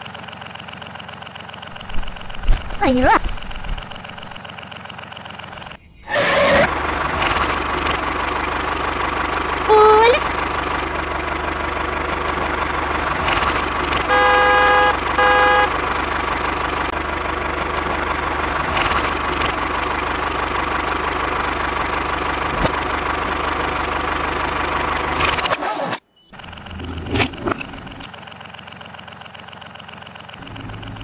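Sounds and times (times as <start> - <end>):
tractor engine running: 0.0 - 31.0
horn toots: 13.9 - 15.8.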